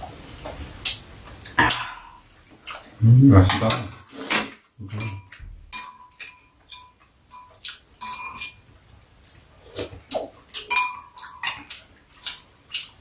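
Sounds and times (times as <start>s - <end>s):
utensils clinking on ceramic bowls: 3.4s - 8.6s, 10.5s - 12.3s.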